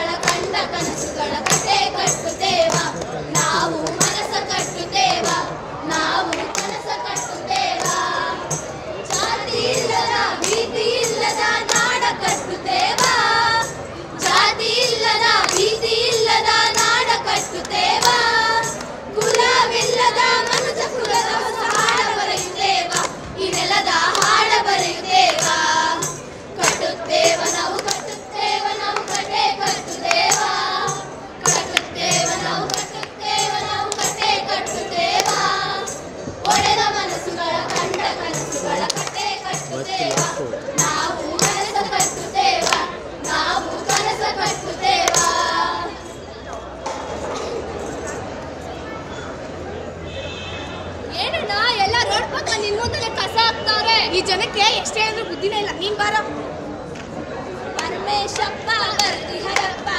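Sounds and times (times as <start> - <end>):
women singing together: 0.0 - 46.3, 57.8 - 59.9
hand claps: 0.1 - 45.6, 57.8 - 59.7.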